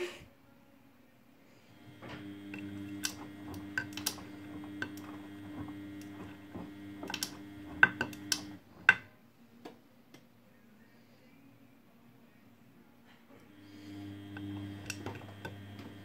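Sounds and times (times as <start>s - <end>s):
washing machine motor hum: 1.7s - 9.1s, 13.5s - 16.0s
laundry clicking and knocking in drum: 1.8s - 9.1s.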